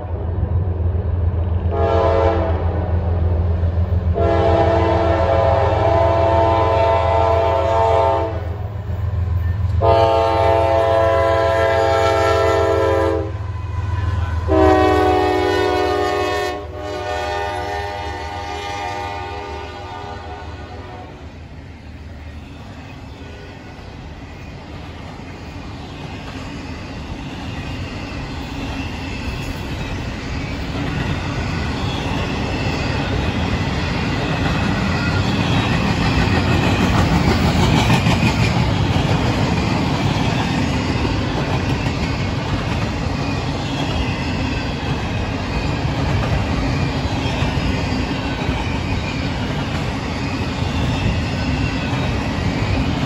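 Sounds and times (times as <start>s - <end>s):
freight train wheels rumbling: 0.0s - 53.0s
high wheel squeal: 22.3s - 37.4s.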